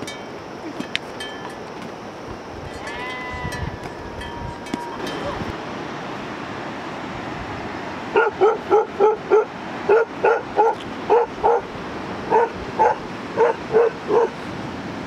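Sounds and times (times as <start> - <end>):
dog barking: 8.1 - 11.7, 12.3 - 14.4.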